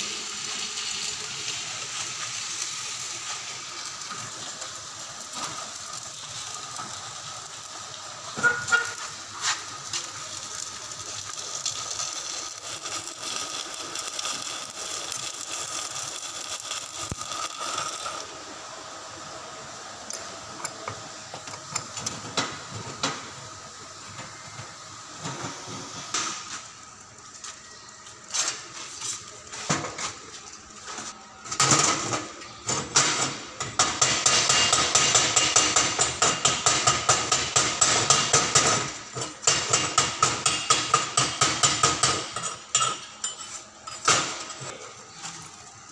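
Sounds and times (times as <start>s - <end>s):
welding arc crackling: 0.0s - 18.6s, 32.9s - 42.8s.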